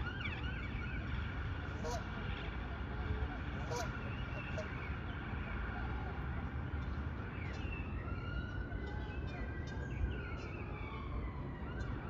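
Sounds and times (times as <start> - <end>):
distant siren wailing: 0.0 - 2.4, 7.2 - 12.0.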